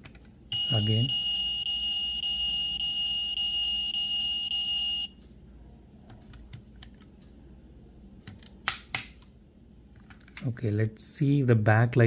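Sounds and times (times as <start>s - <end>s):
high-pitched electronic alarm tone: 0.5s - 5.2s.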